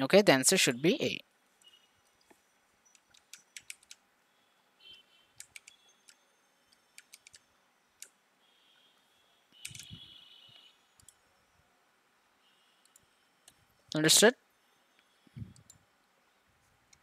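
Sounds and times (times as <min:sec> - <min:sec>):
computer mouse clicks: 0:01.6 - 0:04.0, 0:05.4 - 0:08.2, 0:09.6 - 0:10.0, 0:11.0 - 0:11.2, 0:12.8 - 0:13.6, 0:15.0 - 0:15.8.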